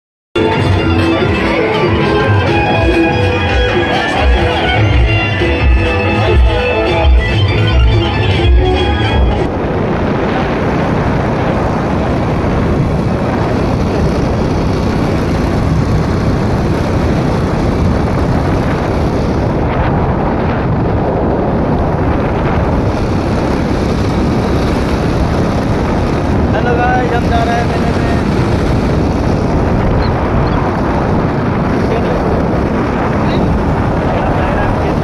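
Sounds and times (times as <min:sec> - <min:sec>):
open vehicle running: 0:00.4 - 0:35.0
wind buffeting microphone: 0:08.0 - 0:35.0.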